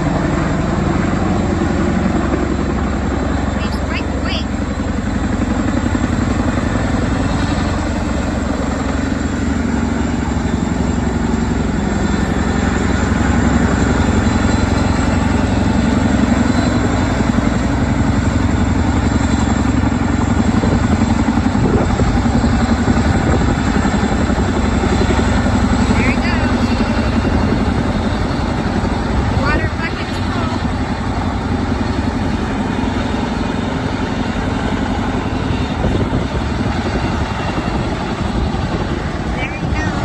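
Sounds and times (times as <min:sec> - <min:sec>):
helicopter rotors chopping: 0:00.0 - 0:40.0.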